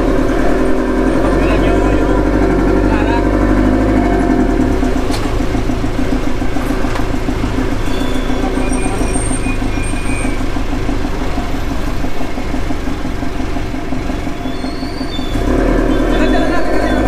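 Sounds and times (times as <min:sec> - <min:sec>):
vehicle engine rumble: 0:00.0 - 0:17.0
faint high squeaks: 0:07.8 - 0:10.6, 0:14.4 - 0:15.4.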